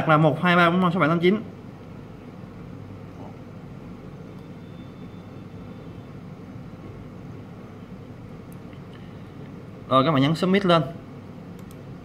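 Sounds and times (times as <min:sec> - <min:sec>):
machinery humming: 0:01.1 - 0:12.0
faint thin whine: 0:03.1 - 0:08.1.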